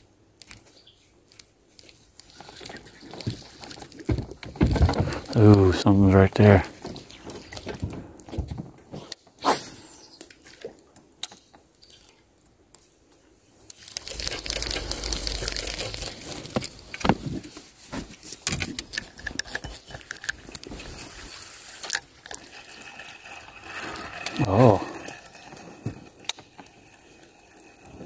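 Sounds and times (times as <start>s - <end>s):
fishing reel clicking clatter: 21.2s - 28.0s.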